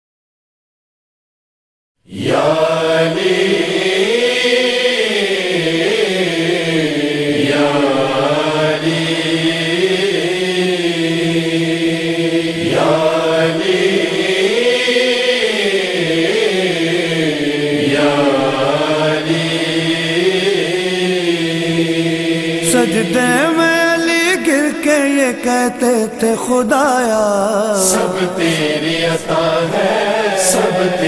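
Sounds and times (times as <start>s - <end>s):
man chanting long notes: 22.6s - 28.1s.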